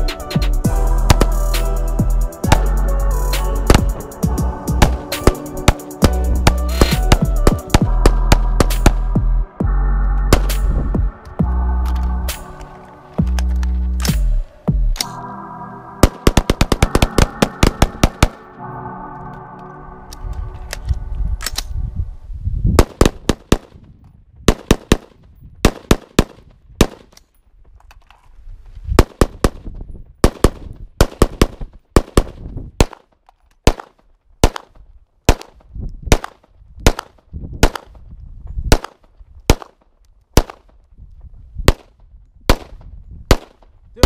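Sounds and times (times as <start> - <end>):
semi-automatic gunshots: 42.5 - 43.6.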